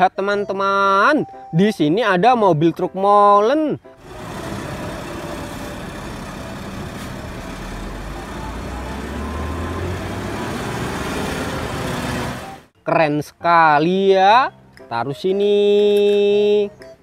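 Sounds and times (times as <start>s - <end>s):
road and tyre noise: 3.9s - 12.7s
diesel engine running: 4.0s - 12.7s.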